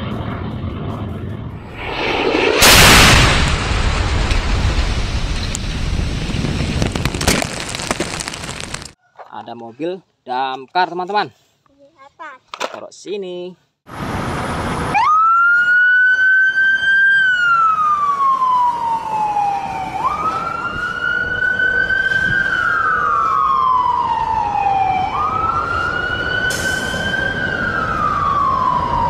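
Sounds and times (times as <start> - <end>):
fire truck siren wailing: 14.0 - 29.0.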